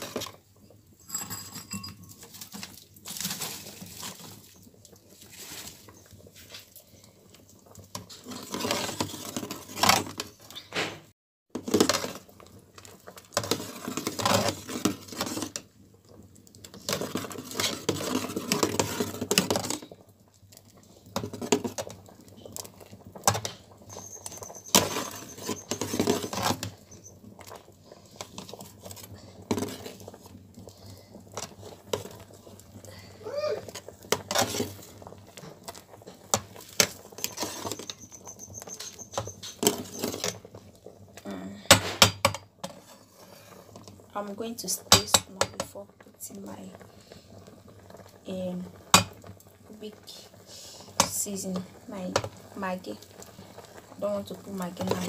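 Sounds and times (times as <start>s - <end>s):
metal spoon scraping metal pot: 23.9s - 27.2s, 36.8s - 40.4s.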